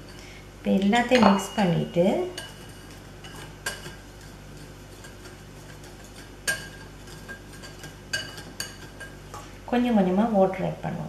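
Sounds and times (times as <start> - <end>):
whisk clinking against bowl: 1.0 - 9.5
whisk stirring flour: 1.0 - 10.2.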